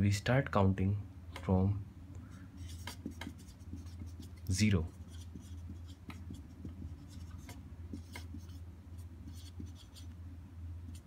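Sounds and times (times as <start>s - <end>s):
low steady hum: 0.0s - 11.0s
marker pen writing on whiteboard: 2.6s - 10.2s.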